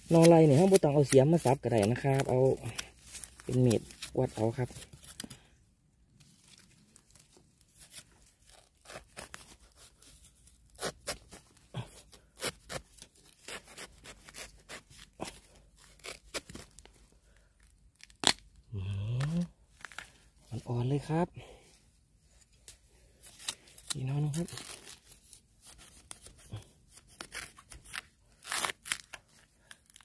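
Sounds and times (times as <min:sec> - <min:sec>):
hands digging in soil and leaves: 0:00.0 - 0:05.2
bamboo shoot snapping: 0:18.0 - 0:20.1.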